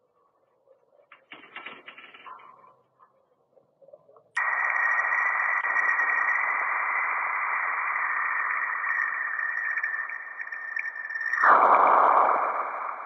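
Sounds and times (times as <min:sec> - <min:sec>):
electronic hiss: 0:04.4 - 0:13.0
high steady tone: 0:04.4 - 0:13.0.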